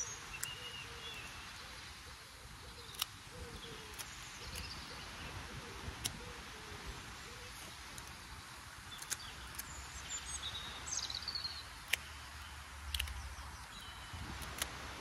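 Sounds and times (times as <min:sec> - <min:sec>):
small birds chirping: 0:00.0 - 0:15.0
sharp clicks: 0:00.2 - 0:00.8, 0:02.8 - 0:03.3, 0:03.9 - 0:04.8, 0:05.9 - 0:06.2, 0:07.8 - 0:15.0
wind buffeting microphone: 0:13.6 - 0:15.0.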